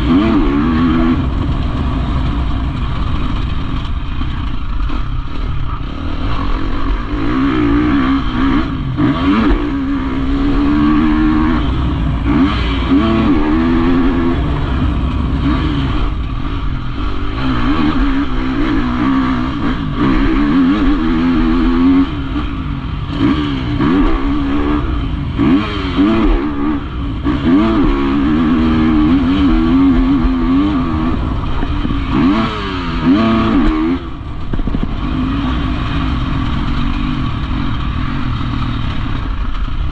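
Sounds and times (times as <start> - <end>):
motocross bike engine revving: 0.0 - 39.9.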